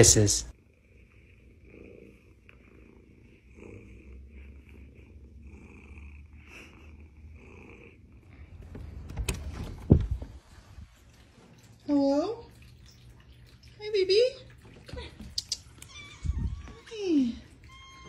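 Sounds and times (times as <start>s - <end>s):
cat purring: 0.5s - 11.0s.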